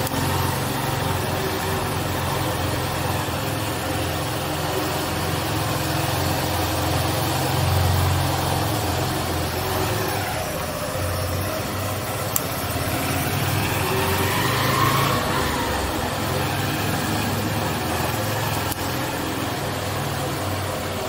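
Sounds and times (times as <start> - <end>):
small motorcycle engine running: 0.0 - 21.0.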